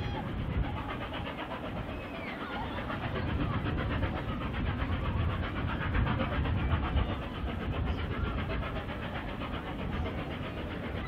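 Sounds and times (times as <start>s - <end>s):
steam locomotive exhaust beats: 0.0s - 11.0s.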